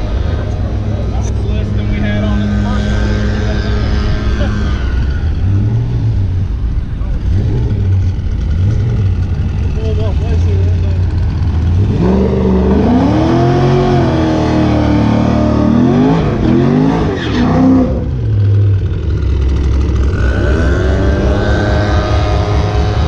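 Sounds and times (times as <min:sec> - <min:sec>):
car engine revving: 0:00.0 - 0:23.0.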